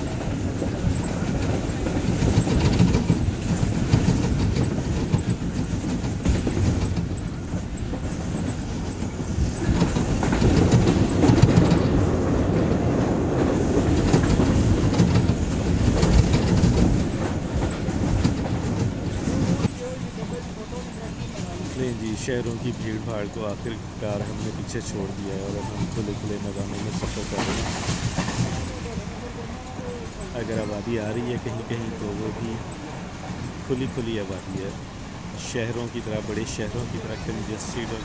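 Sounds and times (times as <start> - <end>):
train wheels rumbling: 0.0 - 38.0
wheels clicking over rail joints: 0.0 - 38.0.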